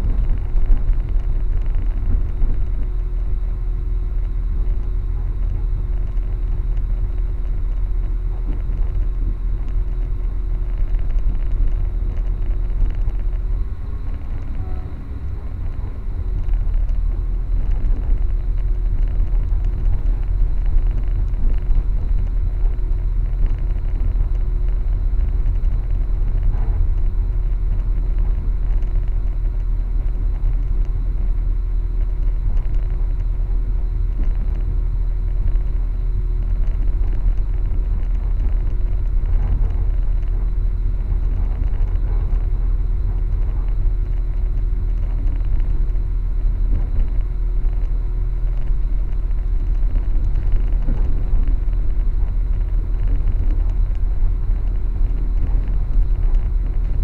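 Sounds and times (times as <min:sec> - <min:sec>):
faint steady hum: 0:00.0 - 0:57.0
train rumbling: 0:11.0 - 0:23.6.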